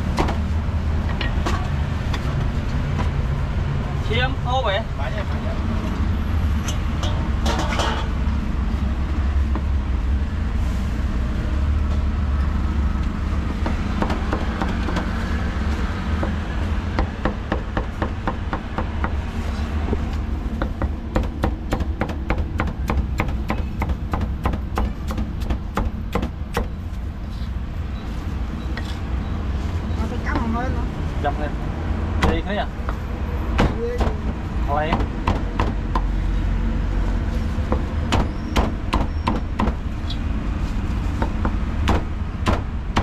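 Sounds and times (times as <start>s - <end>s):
street traffic rumble: 0.0s - 43.0s
cleaver chopping on wooden block: 20.6s - 26.7s.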